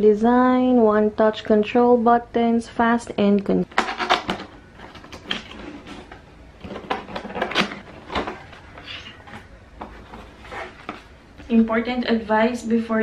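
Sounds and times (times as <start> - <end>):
cardboard boxes rustling and scraping: 3.9 - 11.2.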